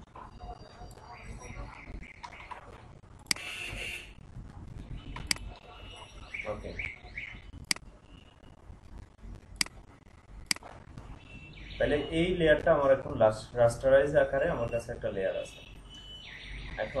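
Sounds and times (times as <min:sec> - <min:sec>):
faint bird chirps: 0:00.2 - 0:02.6, 0:04.9 - 0:08.6, 0:11.1 - 0:12.4, 0:15.3 - 0:17.0.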